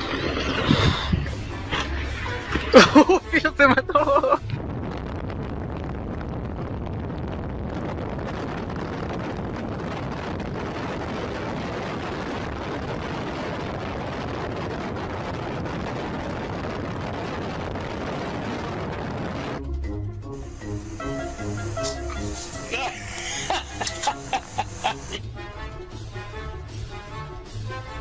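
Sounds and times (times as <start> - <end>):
wind buffeting microphone: 0.0 - 22.3.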